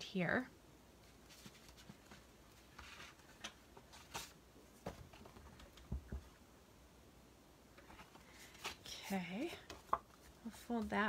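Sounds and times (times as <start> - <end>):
paper and card rustling: 1.0 - 5.8, 7.8 - 11.0.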